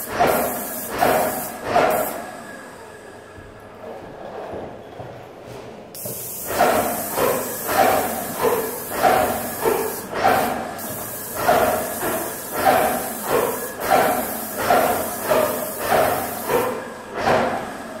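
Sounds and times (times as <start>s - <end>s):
paint sprayer hissing: 0.0s - 2.2s, 5.9s - 16.8s
pump knocking: 6.0s - 10.5s, 11.4s - 16.7s.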